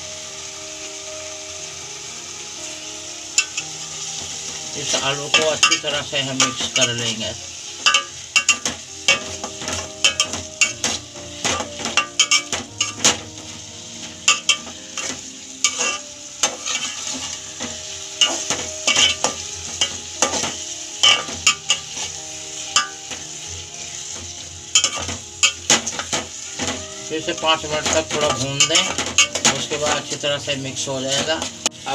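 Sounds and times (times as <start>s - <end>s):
frying in oil sizzle: 0.0s - 31.9s
spatula scraping metal pot: 14.2s - 22.1s.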